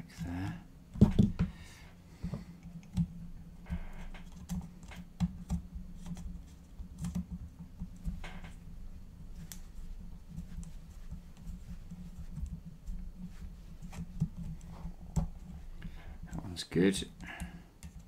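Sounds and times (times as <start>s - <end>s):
soft rustles: 5.8s - 16.6s.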